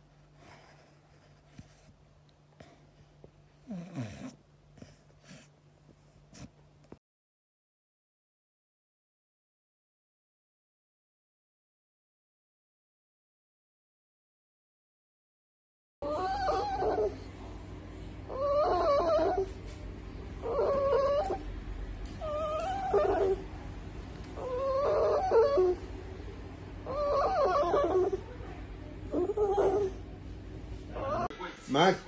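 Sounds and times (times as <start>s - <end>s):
small dog whining: 3.6s - 5.5s, 16.0s - 17.3s, 18.3s - 19.7s, 20.4s - 21.5s, 22.2s - 23.5s, 24.4s - 25.9s, 26.8s - 28.2s, 29.1s - 30.0s, 30.9s - 31.3s.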